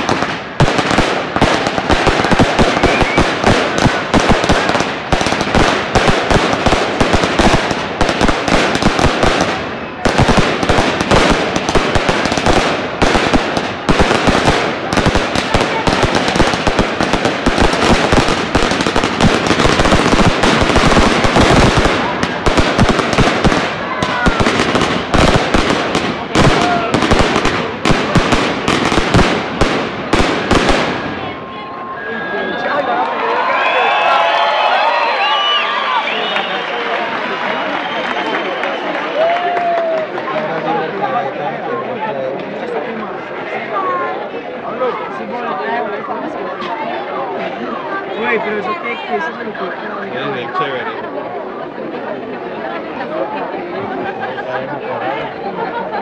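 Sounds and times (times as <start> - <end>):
fireworks cracking and popping: 0.0 - 31.3.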